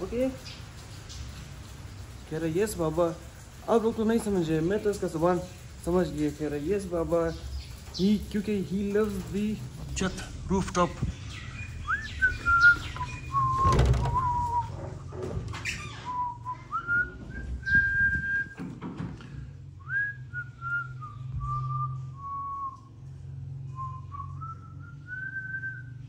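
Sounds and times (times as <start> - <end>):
man whistling a slow tune: 11.9 - 14.8, 16.1 - 18.6, 19.8 - 22.9, 23.7 - 26.0
loud thud: 13.4 - 14.6.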